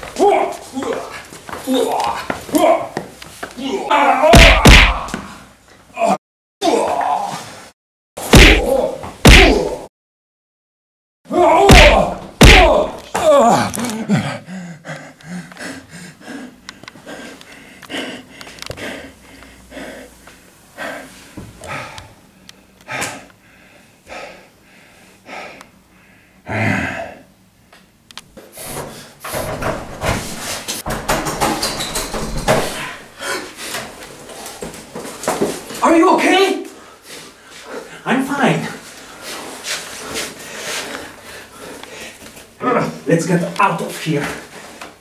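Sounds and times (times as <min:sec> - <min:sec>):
person shouting: 0:03.6 - 0:05.3, 0:08.3 - 0:09.9, 0:11.3 - 0:13.8
loud hits: 0:04.4 - 0:05.1, 0:08.2 - 0:09.8, 0:11.6 - 0:13.0.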